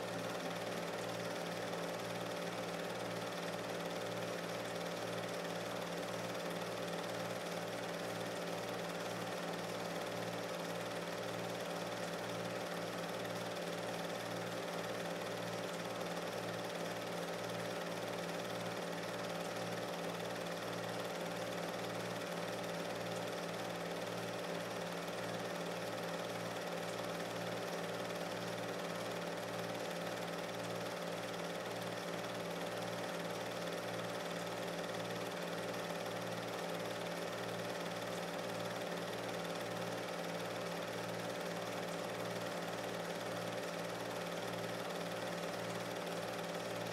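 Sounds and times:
film projector running: 0.0s - 46.9s.

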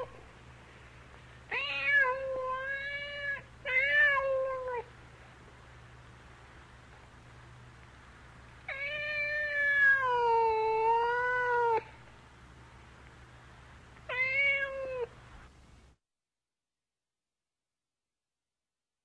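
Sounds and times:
cat meowing: 1.5s - 4.9s, 8.7s - 11.9s, 14.1s - 15.1s.

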